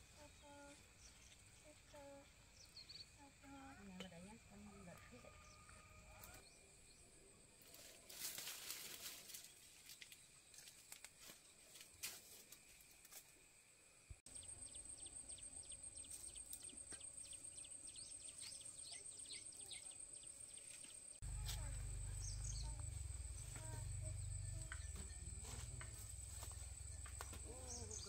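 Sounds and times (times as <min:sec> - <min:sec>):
small birds chirping: 0:00.0 - 0:03.8, 0:14.3 - 0:28.0.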